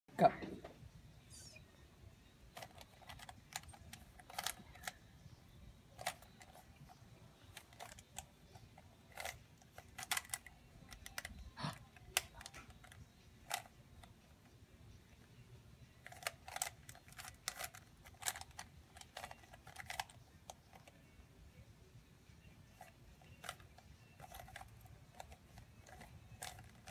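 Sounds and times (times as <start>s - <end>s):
puzzle cube layers clicking: 2.6s - 5.0s, 6.0s - 6.6s, 7.5s - 11.3s, 16.0s - 21.0s, 22.8s - 26.9s.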